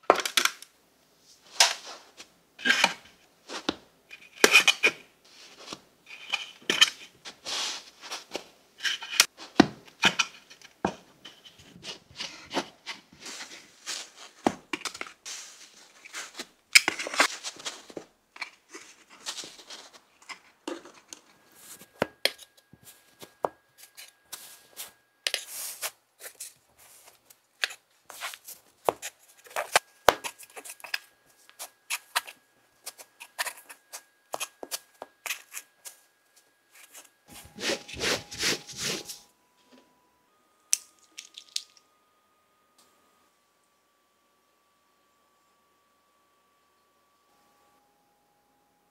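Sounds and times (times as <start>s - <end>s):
sand crunching and scraping: 7.3s - 8.4s, 15.2s - 16.5s.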